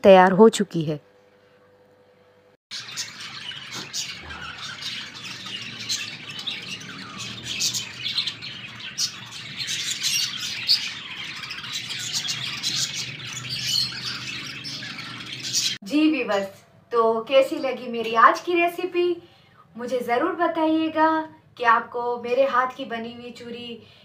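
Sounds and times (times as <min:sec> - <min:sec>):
small birds chirping: 0:02.7 - 0:16.4.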